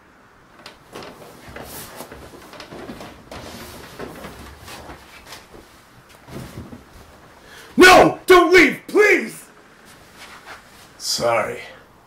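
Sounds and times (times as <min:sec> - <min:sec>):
rustling and soft knocks: 0:00.5 - 0:07.5.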